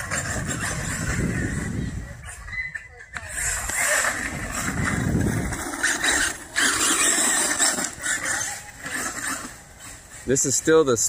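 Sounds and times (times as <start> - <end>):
tyres on dirt: 0.0 - 11.0.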